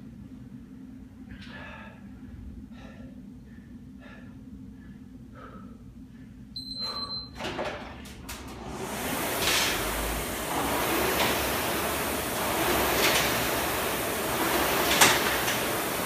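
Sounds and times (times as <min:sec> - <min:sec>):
heavy breathing: 0:01.2 - 0:07.2
short electronic beep: 0:06.6 - 0:07.4
rowing machine flywheel whoosh: 0:07.4 - 0:16.0.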